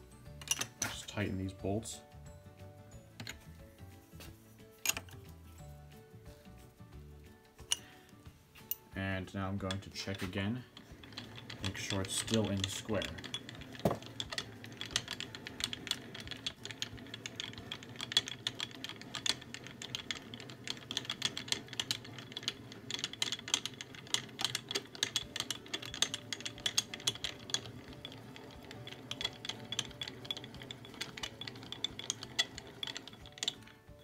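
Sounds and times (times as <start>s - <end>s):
handwheel clicks and rattles: 9.5s - 34.0s.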